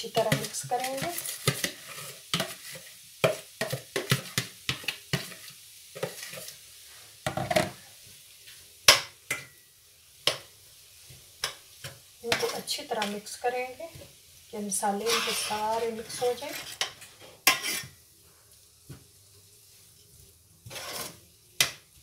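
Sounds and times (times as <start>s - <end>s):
chicken sizzling in pan: 0.0s - 22.0s
spoon scraping and knocking: 0.1s - 6.6s, 15.0s - 18.0s, 20.6s - 21.8s.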